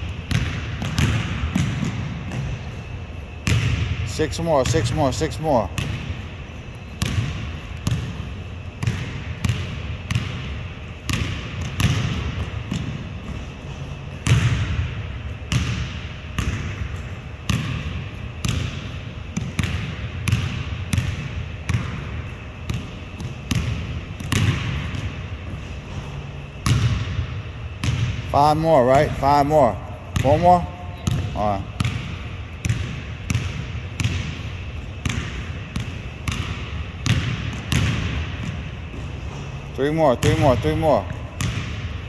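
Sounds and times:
basketball bouncing on wooden floor: 7.0 - 10.5, 11.1 - 13.0, 15.5 - 25.1, 30.2 - 39.2, 40.2 - 41.9.

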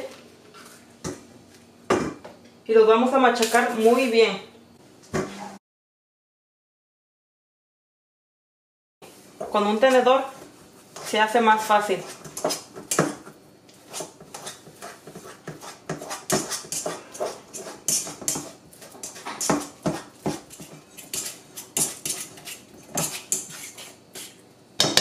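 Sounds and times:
fork scraping a steel bowl: 13.9 - 24.4.

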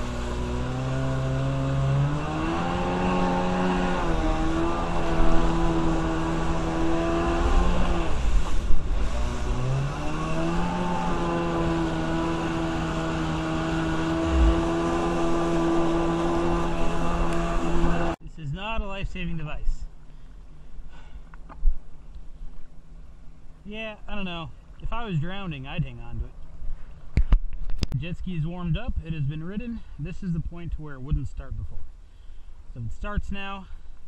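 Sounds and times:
jet ski engine revving: 0.0 - 18.2.

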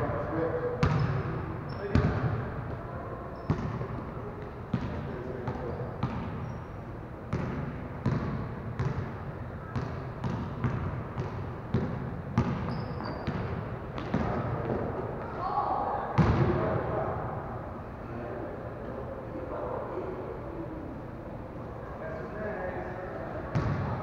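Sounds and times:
basketball bouncing on gym floor: 0.8 - 2.4, 3.4 - 6.6, 7.3 - 14.8, 16.2 - 16.6, 23.5 - 24.0
sneakers squeaking: 0.8 - 15.4.

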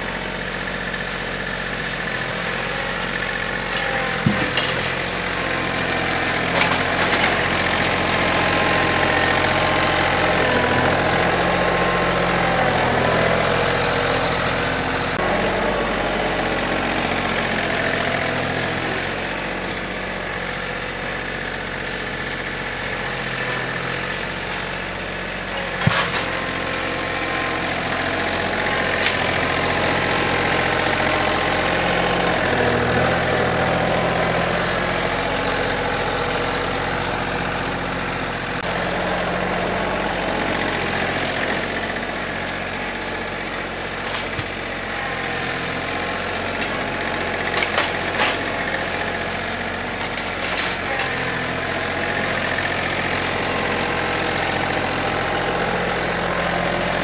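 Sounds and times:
tractor diesel engine revving: 0.0 - 57.0.

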